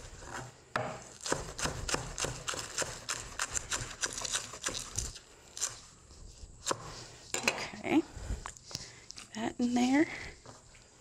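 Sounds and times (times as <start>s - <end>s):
knife chopping on wooden board: 0.3s - 4.9s.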